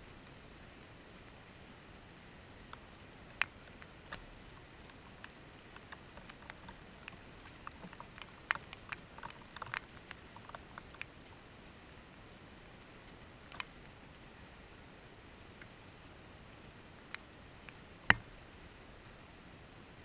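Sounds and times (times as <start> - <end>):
hiss of rain: 0.0 - 20.0
raindrops tapping on window: 2.5 - 11.5, 13.2 - 14.0, 16.6 - 18.6.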